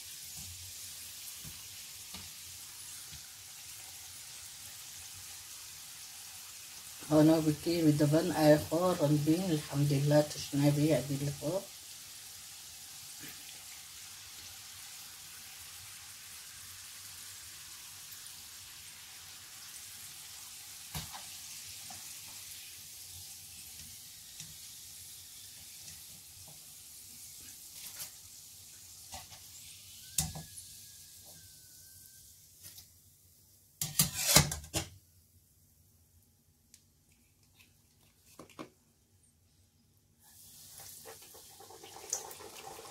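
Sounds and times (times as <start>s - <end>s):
pastries deep-frying in hot oil: 0.0s - 38.2s, 40.1s - 42.9s.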